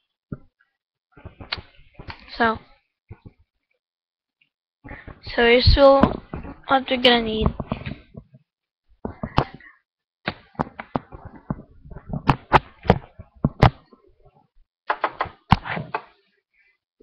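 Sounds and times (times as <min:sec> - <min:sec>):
marker pen knocking on microphone: 0:06.0 - 0:06.6, 0:07.4 - 0:08.4, 0:10.3 - 0:13.9.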